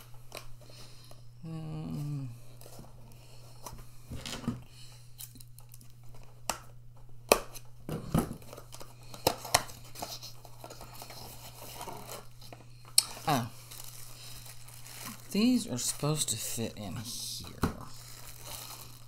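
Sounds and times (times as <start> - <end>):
steady low hum: 0.0 - 19.0
cardboard and tape tearing: 8.4 - 12.5, 13.1 - 16.4, 17.5 - 19.0.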